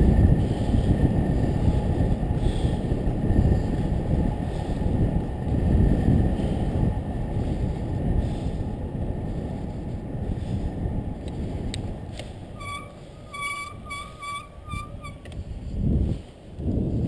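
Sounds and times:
wind buffeting microphone: 0.0s - 17.0s
high-pitched squeal pulses: 12.5s - 15.3s.

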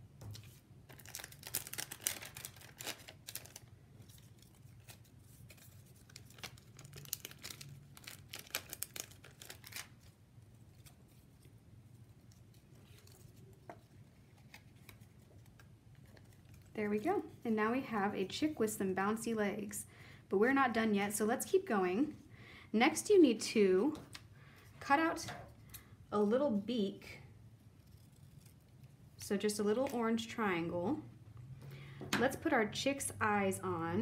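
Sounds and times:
paper rustling and crinkling: 0.2s - 16.7s.

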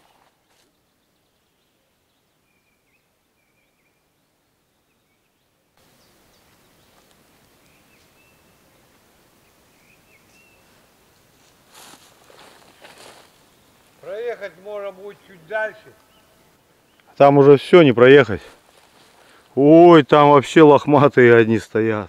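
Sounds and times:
faint high bird calls: 0.0s - 10.9s, 14.0s - 17.3s
background hiss: 0.0s - 22.0s.

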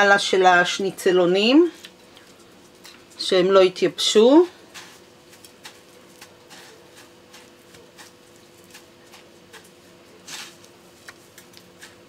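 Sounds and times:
faint steady hum: 0.0s - 12.0s
breadcrumbs crackling and crunching: 4.4s - 12.0s.

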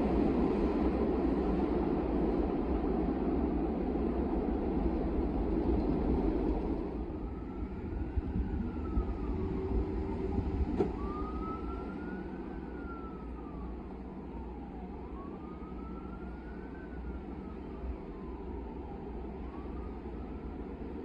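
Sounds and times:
steady low rumble: 0.0s - 11.8s
emergency siren wailing: 6.8s - 21.0s.

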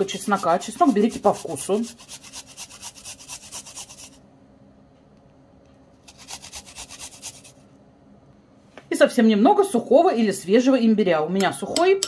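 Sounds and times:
garlic rasping on metal grater: 0.0s - 4.2s, 6.0s - 7.6s.

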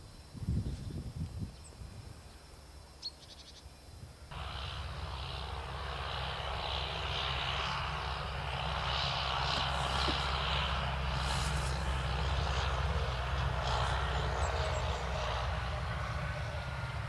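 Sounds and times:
distant engine drone: 2.2s - 17.0s
hiss: 11.1s - 12.1s.

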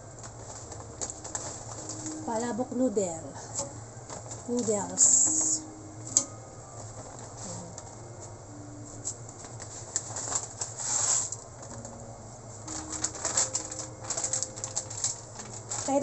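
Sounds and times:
plastic packet rustling: 0.0s - 5.6s, 9.0s - 12.0s, 12.6s - 16.0s
steady low hum: 0.0s - 16.0s.

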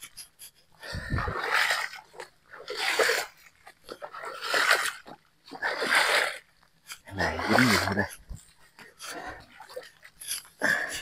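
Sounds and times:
person breathing heavily: 0.8s - 1.4s, 10.2s - 11.0s.

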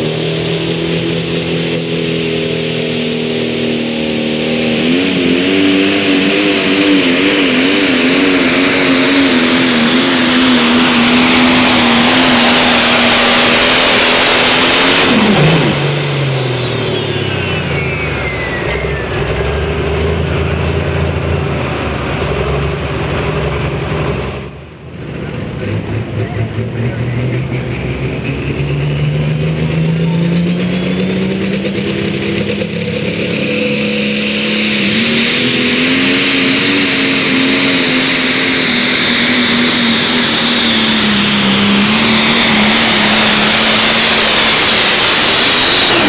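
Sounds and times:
turbocharger whistling: 0.0s - 20.9s, 26.4s - 46.0s
diesel tractor engine revving: 0.0s - 46.0s.

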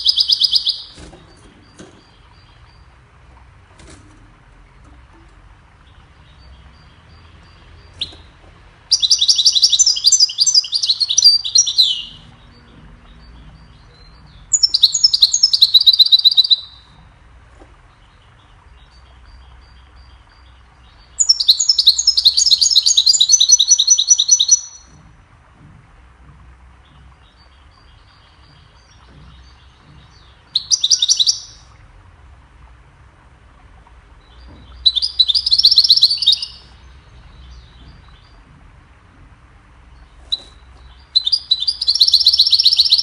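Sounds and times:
goldfinch singing tinkling notes: 0.0s - 3.1s, 8.9s - 16.9s, 18.1s - 24.9s, 26.9s - 31.8s, 34.2s - 38.4s, 40.3s - 43.0s.

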